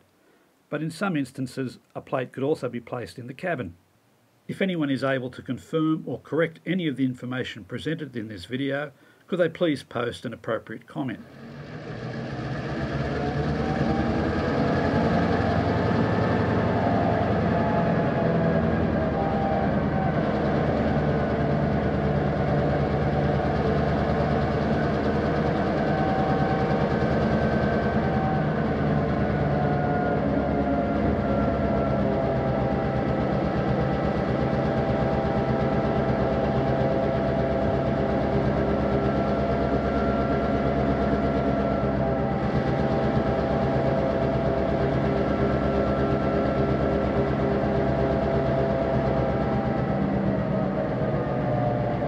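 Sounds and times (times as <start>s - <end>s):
diesel locomotive engine running: 11.2s - 52.0s.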